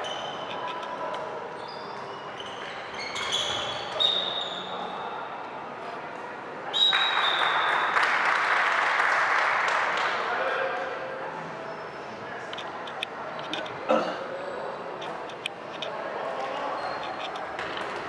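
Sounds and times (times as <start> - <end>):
shoe squeaks: 0.0 - 0.8, 1.5 - 4.9, 16.6 - 17.6
crowd cheering and applauding: 6.9 - 10.0
spectators' voices: 9.5 - 18.0.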